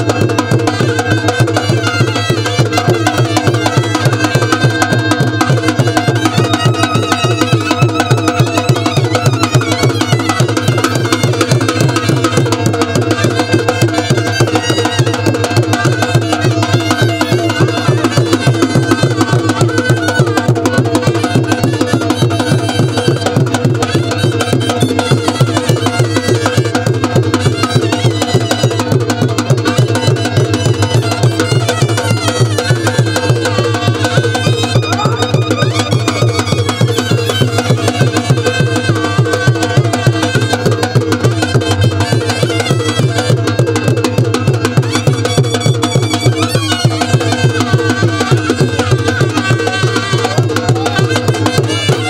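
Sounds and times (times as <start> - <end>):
fast drum beat: 0.0 - 52.0
folk melody line: 0.0 - 52.0.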